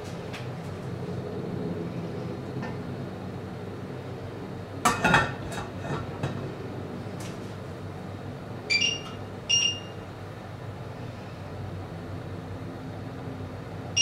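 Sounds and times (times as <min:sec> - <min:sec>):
lid clattering on metal pot: 0:04.9 - 0:06.4
high ringing tones: 0:08.7 - 0:10.1.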